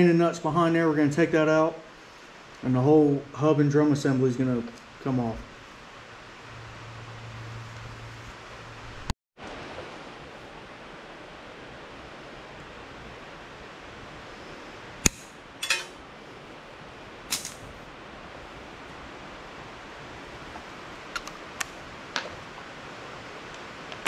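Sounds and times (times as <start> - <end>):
steady hiss: 0.0 - 24.0
pliers metallic clicks: 17.3 - 17.6.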